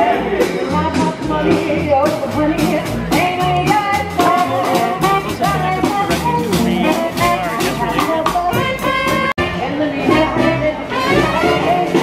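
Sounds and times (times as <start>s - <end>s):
snare drum: 0.0s - 9.4s
upright bass: 0.0s - 12.0s
saxophone: 3.2s - 12.0s.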